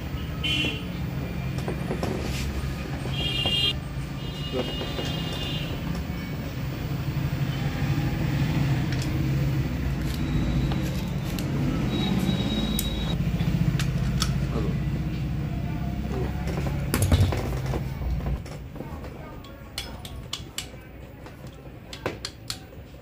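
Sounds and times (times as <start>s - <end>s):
hand tools clicking on metal: 19.4s - 22.8s.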